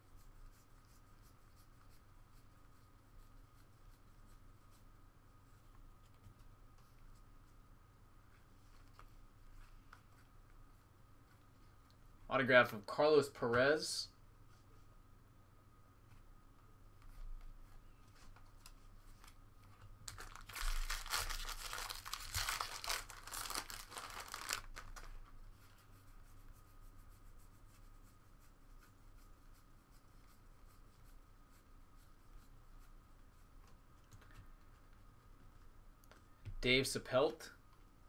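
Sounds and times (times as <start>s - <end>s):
soft clicks of cards handled: 5.6s - 7.2s, 8.3s - 10.6s, 16.0s - 20.0s, 33.6s - 36.6s
foil wrapper tearing and crinkling: 20.1s - 25.2s.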